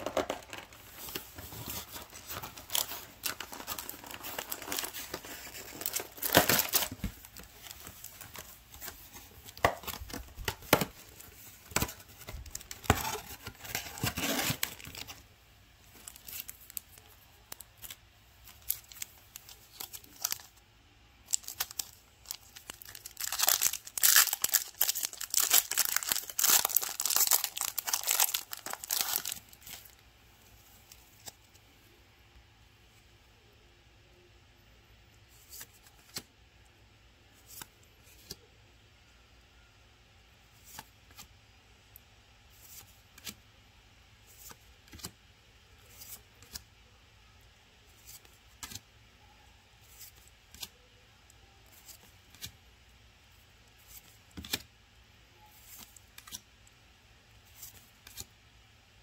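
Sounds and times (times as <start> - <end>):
foil wrapper crinkling and ripping: 1.5 - 8.4, 9.5 - 15.1, 21.3 - 30.0
cardboard box tearing: 12.9 - 14.9.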